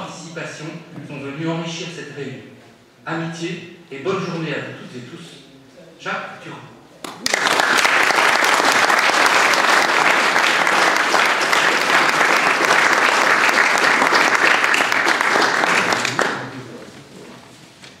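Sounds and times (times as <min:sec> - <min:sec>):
audience applauding: 0:07.1 - 0:16.8.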